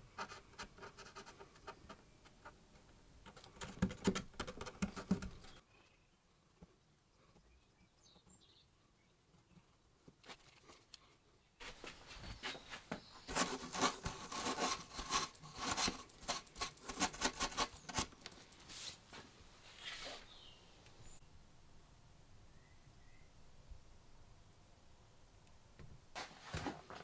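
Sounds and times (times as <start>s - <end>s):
fingers rubbing on wood: 13.2s - 18.1s.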